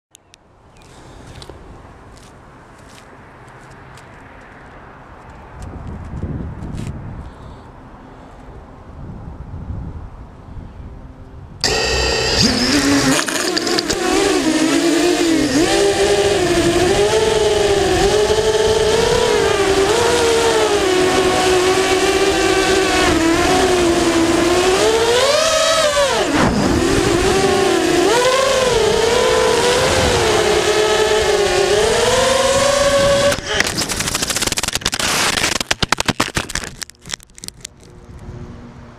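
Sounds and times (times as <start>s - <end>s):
quadcopter motors whining: 11.6s - 36.7s
drone crashing clatter: 26.3s - 28.0s, 33.4s - 36.9s.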